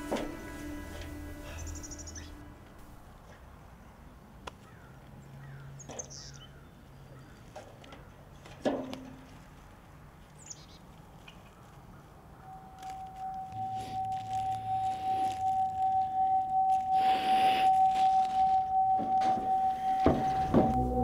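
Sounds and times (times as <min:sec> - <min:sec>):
birds chirping: 0:00.0 - 0:03.1
footsteps on metal bleachers: 0:19.0 - 0:20.8.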